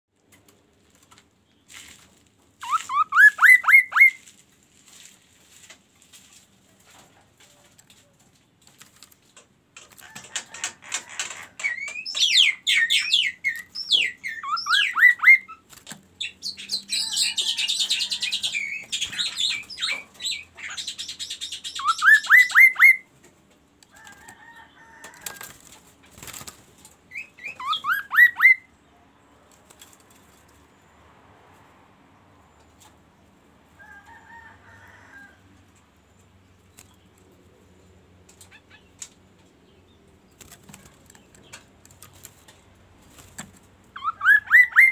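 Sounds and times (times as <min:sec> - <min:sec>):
songbird singing whistled notes: 0:02.6 - 0:04.2, 0:11.7 - 0:15.6, 0:18.5 - 0:23.1, 0:27.1 - 0:28.7, 0:44.0 - 0:44.9
clicks in bird cage: 0:08.7 - 0:12.4
wing flutter: 0:23.9 - 0:27.0, 0:40.2 - 0:43.9.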